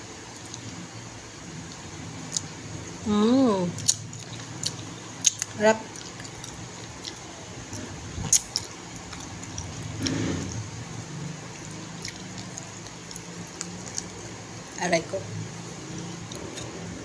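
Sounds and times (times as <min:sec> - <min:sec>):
steady low hum: 0:00.0 - 0:17.0
chewing and lip smacking: 0:03.8 - 0:10.8, 0:11.4 - 0:14.3.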